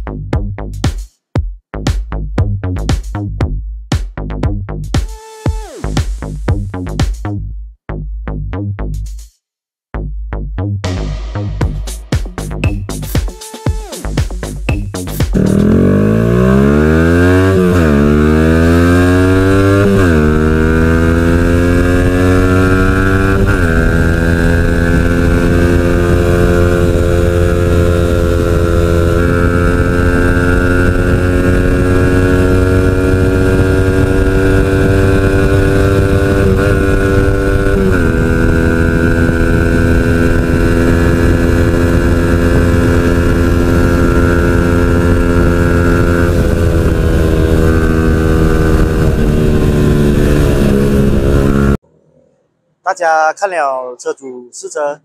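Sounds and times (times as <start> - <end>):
motorcycle engine accelerating: 14.2 - 51.8
wind rumble on microphone: 16.9 - 51.8.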